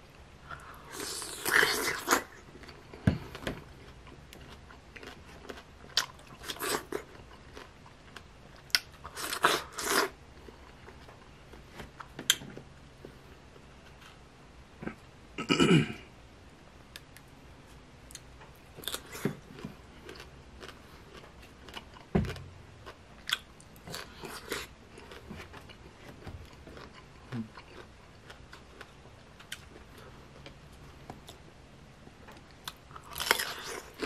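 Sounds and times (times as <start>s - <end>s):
crunchy chewing: 0.5s - 11.3s, 18.1s - 30.2s, 32.3s - 34.0s
low thump: 22.1s - 22.5s.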